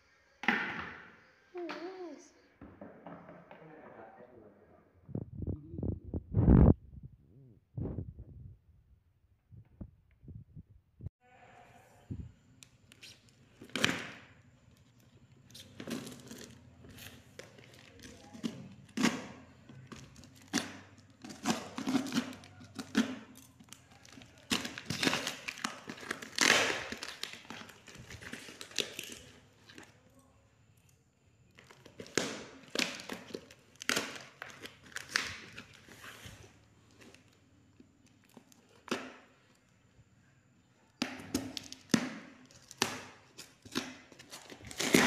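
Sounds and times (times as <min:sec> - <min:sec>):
plastic wrapping crinkling: 0:12.6 - 0:30.0, 0:31.5 - 0:39.7, 0:41.3 - 0:45.0
packing tape ripping: 0:15.5 - 0:29.9, 0:31.6 - 0:37.2, 0:41.1 - 0:45.0.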